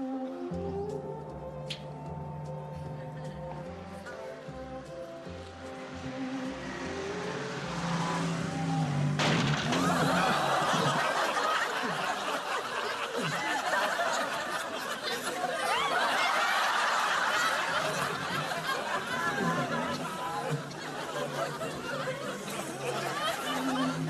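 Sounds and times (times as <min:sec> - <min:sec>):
soundtrack music: 0:00.0 - 0:11.4
audience laughing: 0:07.6 - 0:24.0.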